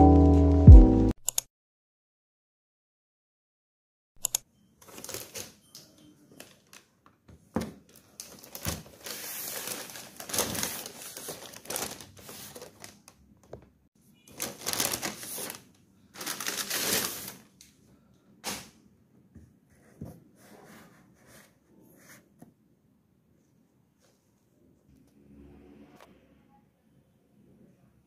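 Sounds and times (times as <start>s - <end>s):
shopping bag rustling: 4.8s - 5.6s, 8.2s - 13.1s, 14.3s - 17.5s.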